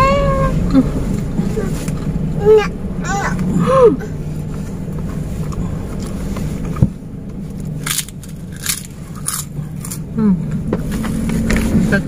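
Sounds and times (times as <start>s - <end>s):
car idling hum: 0.0s - 12.0s
cracker crunching: 7.5s - 10.0s.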